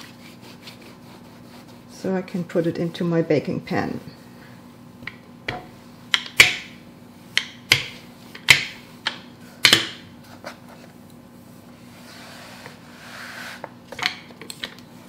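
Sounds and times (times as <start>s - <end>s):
rolling pin knocking on wooden board: 5.0s - 6.7s.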